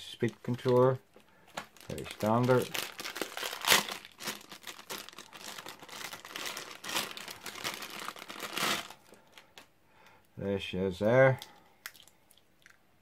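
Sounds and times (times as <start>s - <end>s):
plastic bag crinkling: 0.2s - 9.6s.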